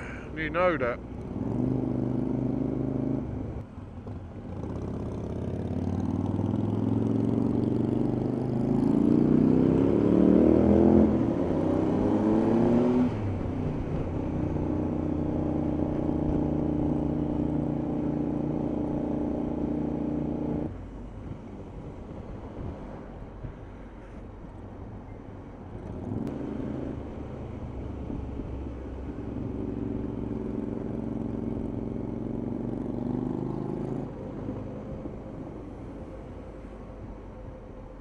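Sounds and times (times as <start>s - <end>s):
motorcycle engine revving: 1.2s - 3.6s, 4.5s - 20.7s, 26.0s - 34.7s.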